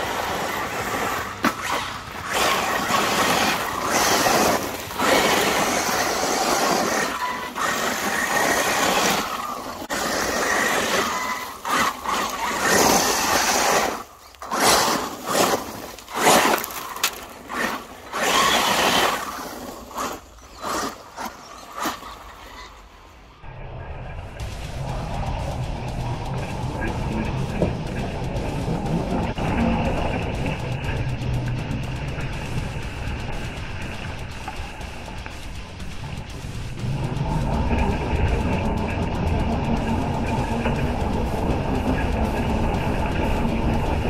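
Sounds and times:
electric motor whine: 0:00.0 - 0:21.9
tyres scrabbling through stones: 0:00.0 - 0:22.9.

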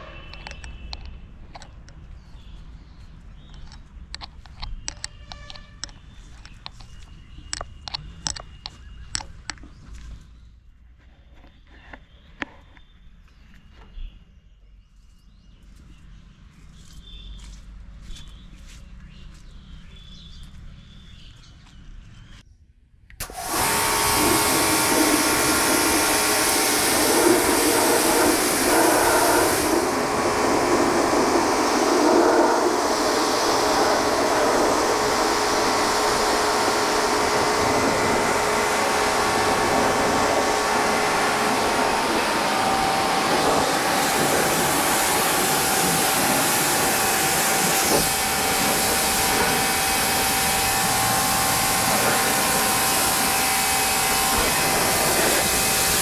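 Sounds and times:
pressure washer jet hissing: 0:23.2 - 0:56.0
steady whine: 0:23.2 - 0:56.0.

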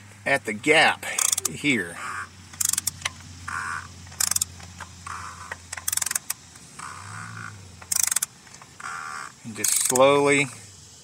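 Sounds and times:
ratchet clicking: 0:01.2 - 0:01.6, 0:02.5 - 0:03.3, 0:04.1 - 0:10.5.

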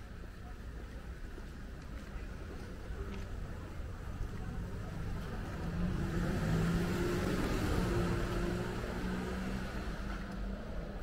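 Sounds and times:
vehicle engine hum passing: 0:04.4 - 0:11.0.

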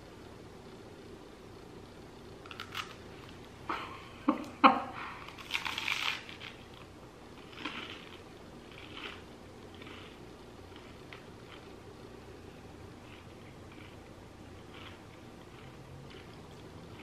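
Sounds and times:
cracker crunching: 0:02.4 - 0:03.4, 0:05.2 - 0:11.8, 0:13.0 - 0:17.0.

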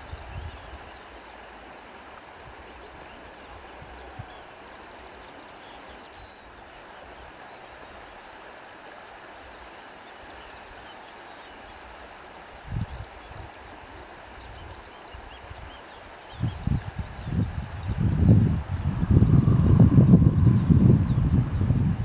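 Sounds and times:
wind buffeting microphone: 0:00.0 - 0:00.9, 0:12.6 - 0:13.6, 0:16.4 - 0:22.0
steady wind hiss: 0:00.0 - 0:22.0.

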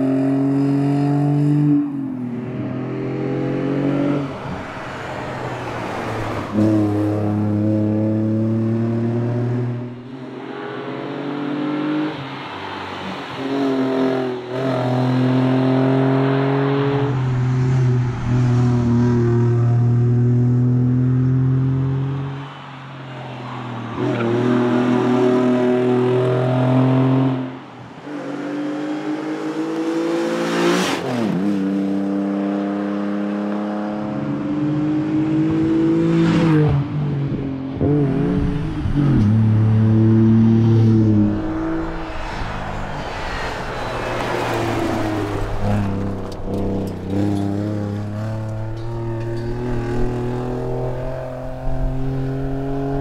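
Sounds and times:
rally car engine revving: 0:00.0 - 0:12.2, 0:37.7 - 0:53.0.

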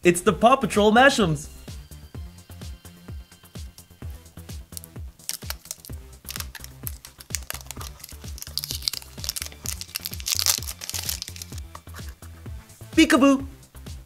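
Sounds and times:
background music with steady beat: 0:00.0 - 0:14.0
plastic wrapper crinkling: 0:04.7 - 0:12.3.

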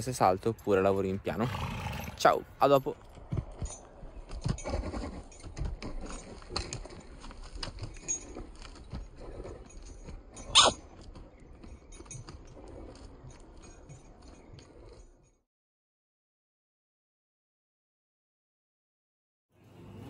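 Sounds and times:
hooves on sand: 0:00.2 - 0:15.4.

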